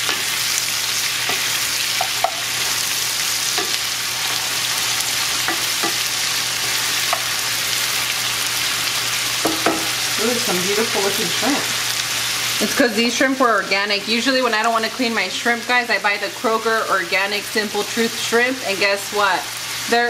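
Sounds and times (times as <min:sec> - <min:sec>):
shrimp and onions sizzling in skillet: 0:00.0 - 0:20.0
wooden spoon knocking against pan: 0:09.4 - 0:09.9.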